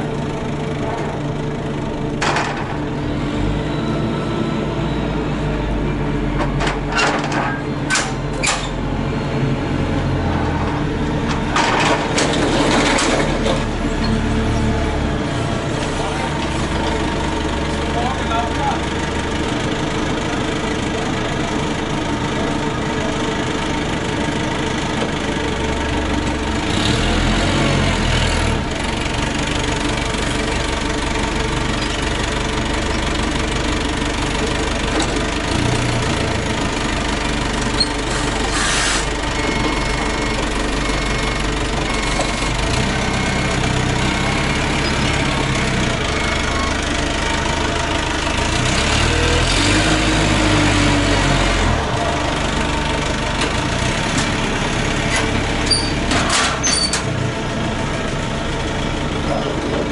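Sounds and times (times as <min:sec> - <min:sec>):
engine revving: 0:26.4 - 0:28.8, 0:48.3 - 0:52.7.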